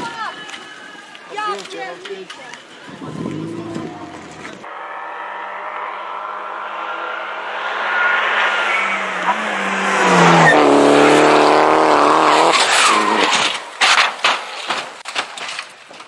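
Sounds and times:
rally car engine at high revs: 4.7s - 13.4s
sharp cracks: 12.3s - 16.0s.

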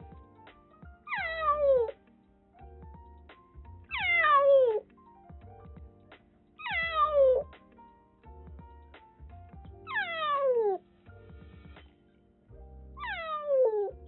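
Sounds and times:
soft background music: 0.0s - 14.0s
kitten meowing: 1.1s - 1.9s, 3.9s - 4.8s, 6.6s - 7.4s, 9.9s - 10.8s, 13.0s - 13.9s.

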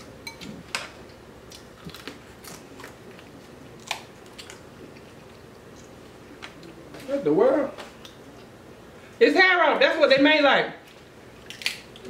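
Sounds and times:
crab shells cracking: 11.4s - 12.0s.

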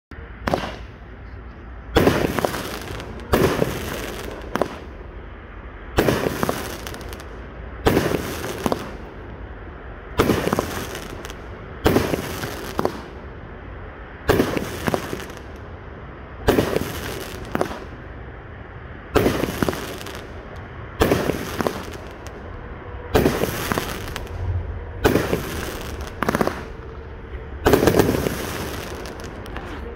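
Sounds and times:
firework bangs: 0.4s - 1.1s, 1.8s - 5.0s, 5.9s - 9.2s, 10.1s - 13.2s, 14.2s - 15.7s, 16.4s - 18.1s, 19.1s - 29.7s.

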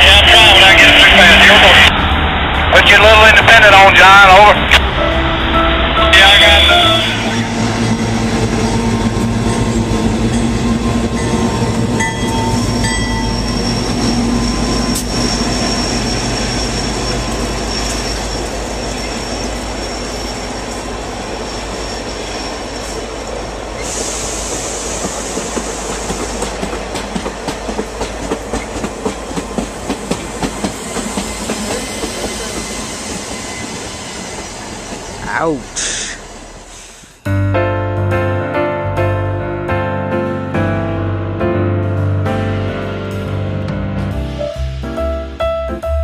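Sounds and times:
faint high wheel squeal: 12.2s - 24.8s, 30.8s - 35.0s
hiss of air: 23.8s - 26.4s.

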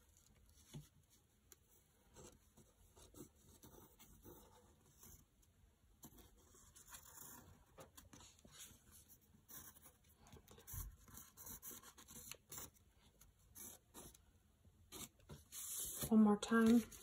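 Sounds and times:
pencil scratching on paper: 2.0s - 5.3s, 6.0s - 14.2s, 14.9s - 17.0s.

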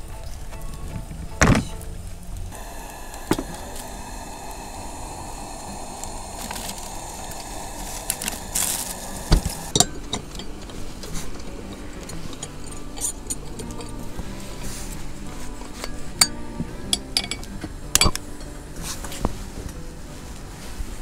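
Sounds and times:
steady low hiss: 0.0s - 21.0s
dishes and utensils clinking: 6.8s - 19.8s.

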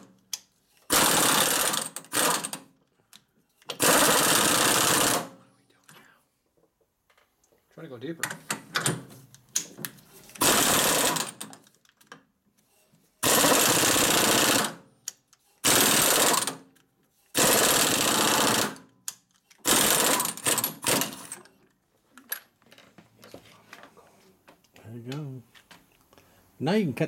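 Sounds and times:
pneumatic zip gun bursts: 0.8s - 2.6s, 3.7s - 5.4s, 10.4s - 11.4s, 13.2s - 14.8s, 15.6s - 16.6s, 17.3s - 18.8s, 19.6s - 21.3s.

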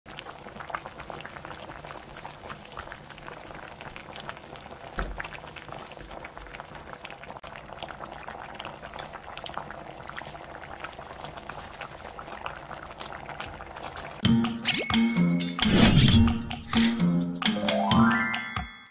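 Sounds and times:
thick sauce bubbling in a pot: 0.1s - 14.2s
cheerful music: 14.2s - 18.9s.

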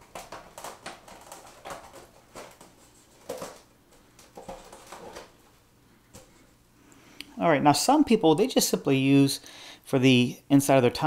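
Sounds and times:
plastic sheet scraping foam board: 0.0s - 5.5s.

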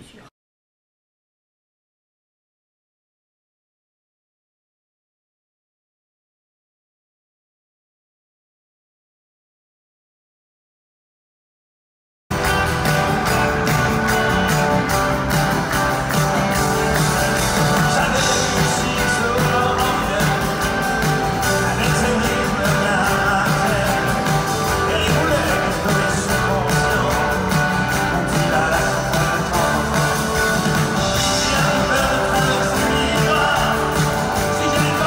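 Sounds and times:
acoustic guitar: 12.3s - 35.0s
live band playing: 12.3s - 35.0s
man singing: 16.8s - 35.0s.

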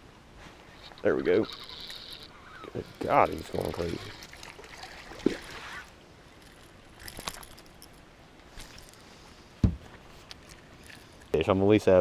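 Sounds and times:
handling noise: 6.4s - 11.3s
soft thump: 9.6s - 9.9s.

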